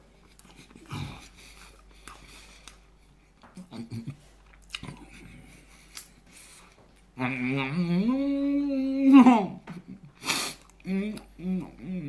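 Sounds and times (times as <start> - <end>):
chewing and crunching fried chicken: 0.0 - 7.2.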